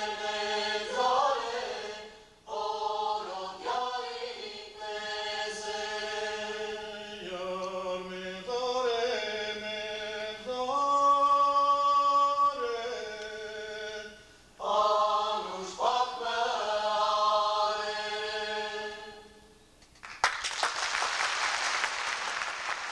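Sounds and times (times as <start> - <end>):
voices singing unaccompanied: 0.0 - 19.5
audience applause: 20.0 - 22.9.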